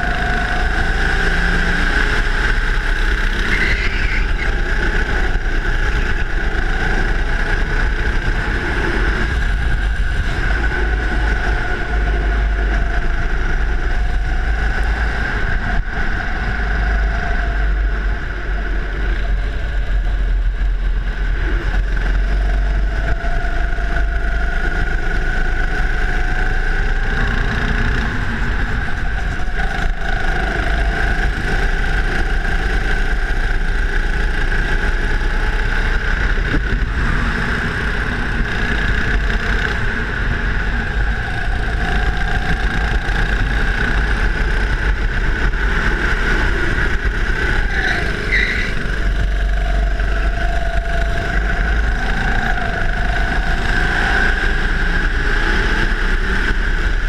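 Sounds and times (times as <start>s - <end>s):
go-kart engine running: 0.0s - 57.0s
low rumble: 0.0s - 57.0s.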